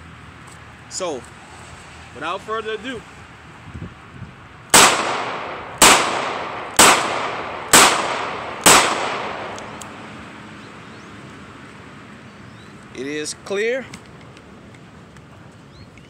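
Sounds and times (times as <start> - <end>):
gunshot echo: 4.8 - 9.8
revolver shots: 4.8 - 9.9.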